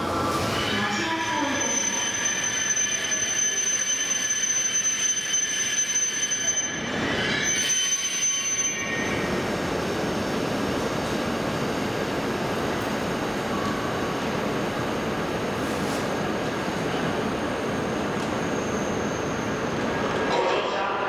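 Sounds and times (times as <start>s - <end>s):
train whine and squeal: 0.0s - 21.0s.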